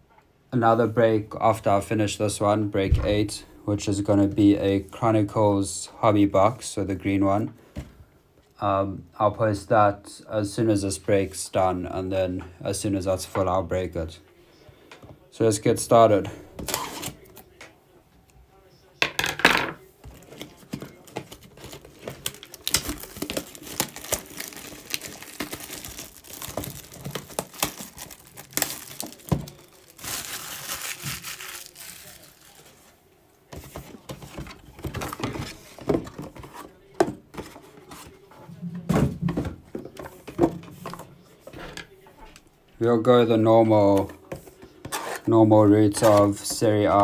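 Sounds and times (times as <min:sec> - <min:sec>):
plastic wrap tearing and crinkling: 0:20.2 - 0:33.0.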